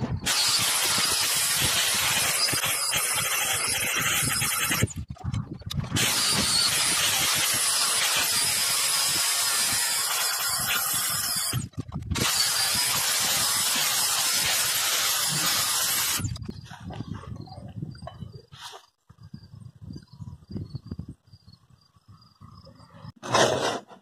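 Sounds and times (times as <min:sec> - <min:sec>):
angle grinder grinding steel: 0:00.2 - 0:05.0, 0:06.0 - 0:16.4.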